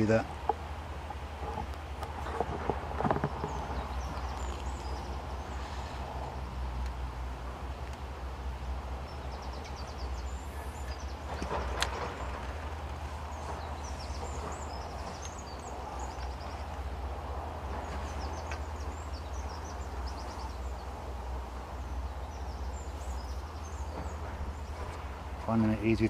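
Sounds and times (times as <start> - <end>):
wind rumble on microphone: 0.0 - 7.8
small birds chirping: 0.0 - 26.0.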